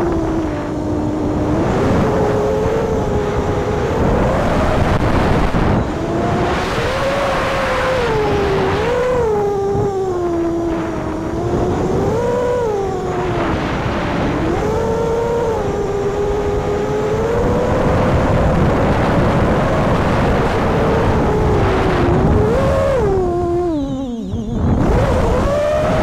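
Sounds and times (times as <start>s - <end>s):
drone motors whining: 0.0s - 26.0s
wind rushing on microphone: 0.0s - 26.0s.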